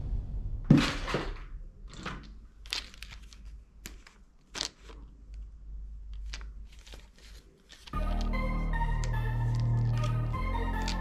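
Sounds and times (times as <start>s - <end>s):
plastic toys clattering in a box: 1.9s - 5.1s.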